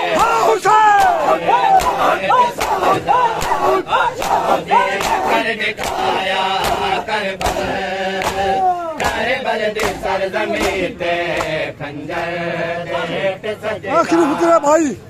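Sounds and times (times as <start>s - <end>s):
men chanting in unison: 0.0s - 15.0s
hands slapping bare chests: 0.9s - 11.6s.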